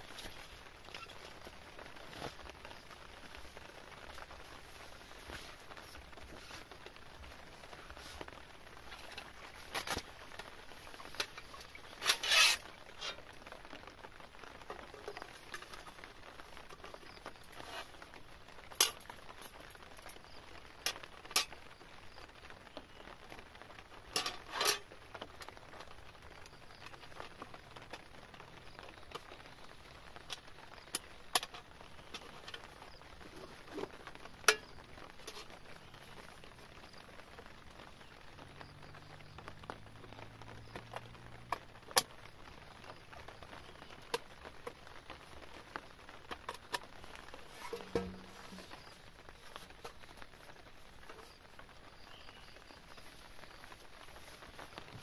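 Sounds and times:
faint steady hiss: 0.0 - 55.0
metal tool scraping wood: 12.0 - 12.6.

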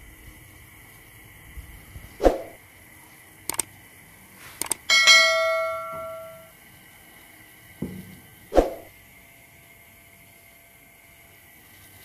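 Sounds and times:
mouse clicks: 4.6 - 4.8
bell chime: 4.9 - 6.5.

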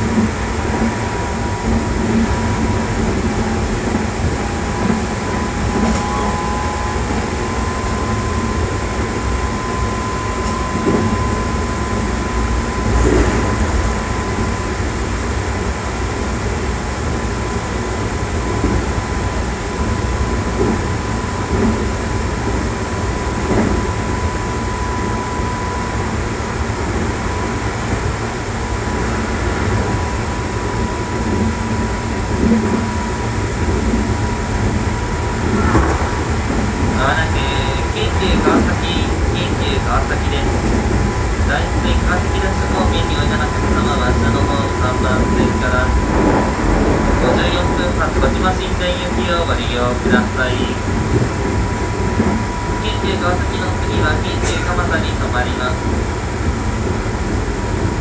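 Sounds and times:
train wheels rumbling on rail: 0.0 - 58.0
train whine: 0.0 - 58.0.

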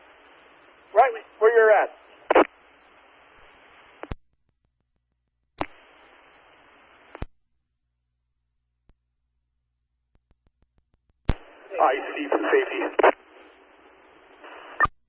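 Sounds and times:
radio static hiss: 0.0 - 4.2, 5.6 - 7.3, 11.3 - 14.9.

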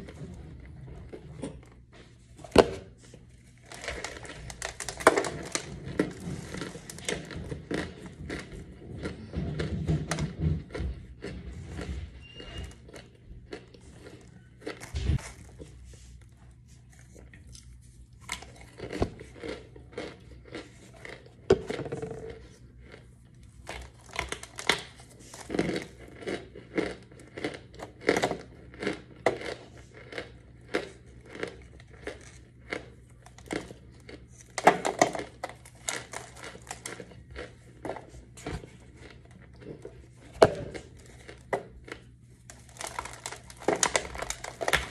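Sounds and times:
chalky block crunching and snapping: 23.6 - 37.5, 40.3 - 44.9.

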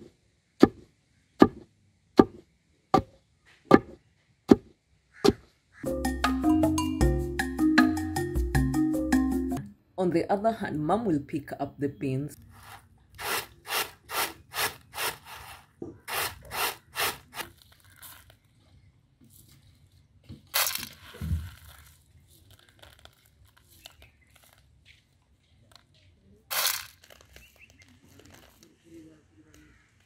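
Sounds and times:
dried beans rattling in bamboo tray: 12.4 - 18.7, 20.4 - 24.8, 26.5 - 28.8
hands picking through beans: 12.4 - 29.0.

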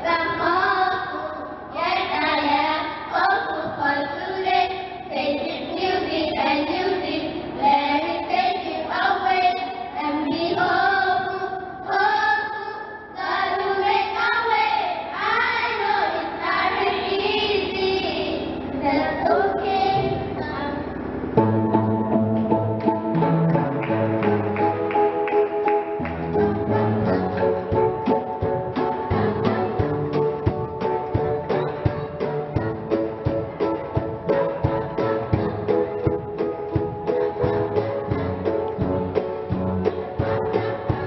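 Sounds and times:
girls choir singing: 0.0 - 20.9, 26.0 - 41.0
instrumental backing music: 15.2 - 41.0.

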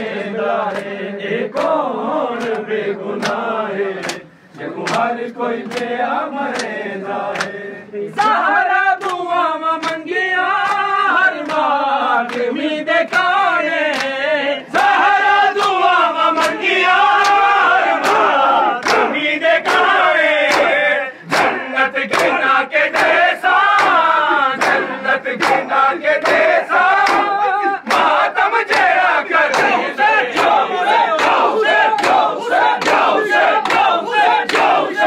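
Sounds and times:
men chanting and shouting: 0.0 - 35.0
hands slapping bare chests: 2.4 - 3.4, 4.0 - 7.6, 16.4 - 16.6, 17.2 - 17.4, 18.0 - 35.0.

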